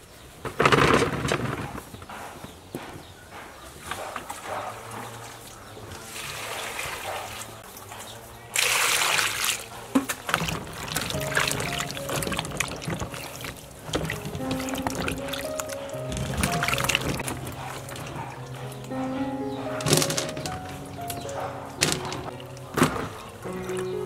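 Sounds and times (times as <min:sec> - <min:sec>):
apples tumbling into plastic basin: 0:00.4 - 0:02.0, 0:10.0 - 0:18.2, 0:19.8 - 0:21.1, 0:21.8 - 0:23.4
water pouring onto fruit: 0:08.5 - 0:18.1
hands sloshing apples in water: 0:08.6 - 0:19.1, 0:19.8 - 0:24.0.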